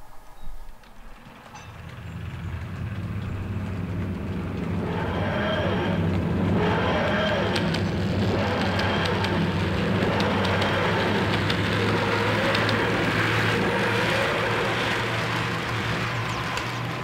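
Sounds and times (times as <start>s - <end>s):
model train running: 0.8s - 17.0s.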